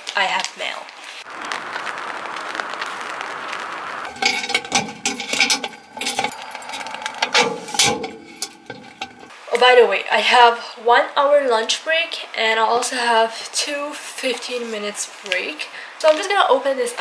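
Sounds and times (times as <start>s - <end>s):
rain hissing: 1.0s - 9.3s
keys jangling: 4.1s - 9.3s
metal mailbox door opening: 4.1s - 9.3s.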